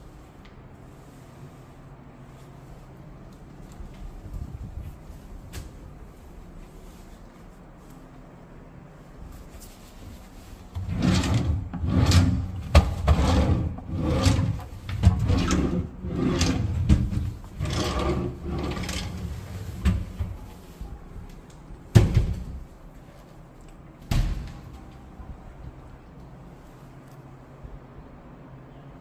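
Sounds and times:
wooden drawers sliding: 10.8s - 20.5s.

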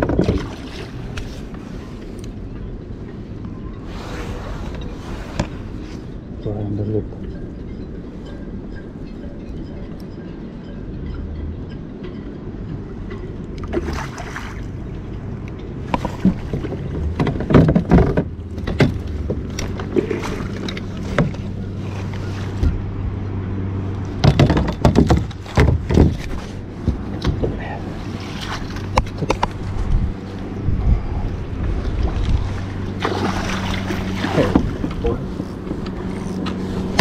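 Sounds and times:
steady low hum: 0.0s - 37.0s
clothing rubbing on microphone: 3.9s - 6.1s
knocks and thumps: 15.9s - 20.0s, 24.2s - 27.6s.

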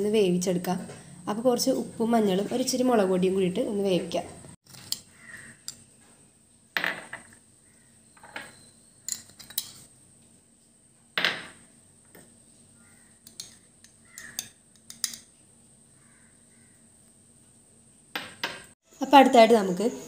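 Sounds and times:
metal spoon clinking on dishes: 8.2s - 9.8s, 13.2s - 15.3s.

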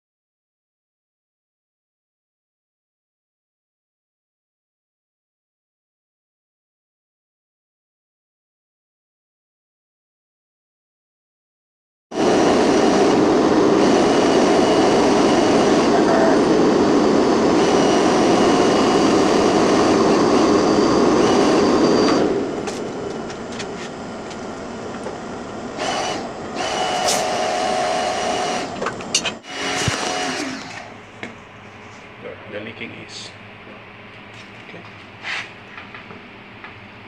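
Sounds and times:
gas hissing from regulator: 12.2s - 24.0s.

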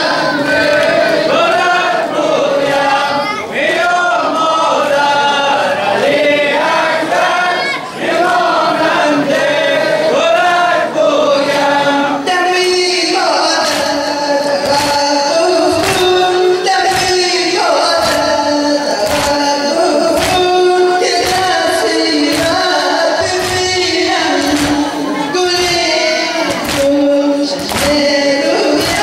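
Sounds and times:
men singing a lament: 0.0s - 29.0s
hands slapping on chests: 13.6s - 15.1s, 15.8s - 16.2s, 16.8s - 17.3s, 18.0s - 18.4s, 19.0s - 19.5s, 20.1s - 20.5s, 21.2s - 21.6s, 22.2s - 24.9s, 25.5s - 25.9s, 26.5s - 27.0s, 27.6s - 28.1s.

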